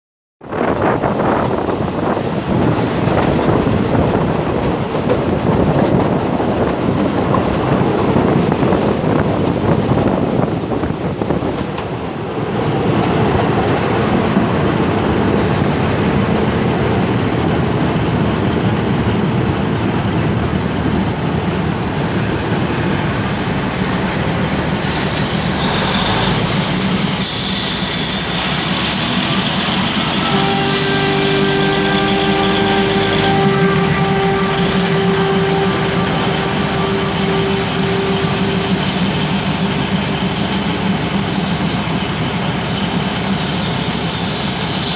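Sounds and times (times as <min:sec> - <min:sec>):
train wheels rumbling on rails: 0:00.4 - 0:44.9
train brakes squealing and hissing: 0:22.1 - 0:44.9.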